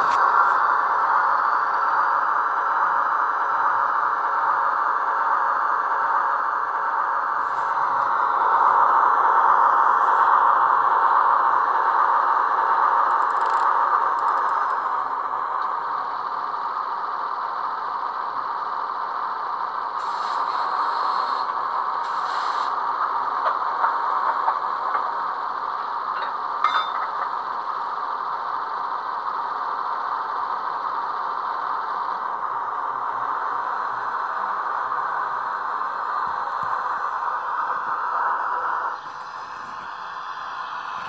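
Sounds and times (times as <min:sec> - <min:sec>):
model diesel engine idling: 0:00.0 - 0:41.0
short hisses: 0:20.0 - 0:22.7.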